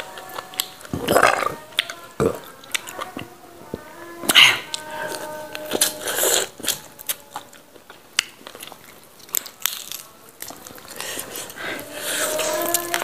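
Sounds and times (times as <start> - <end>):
teeth crunching on meat and gristle: 5.7 - 13.0.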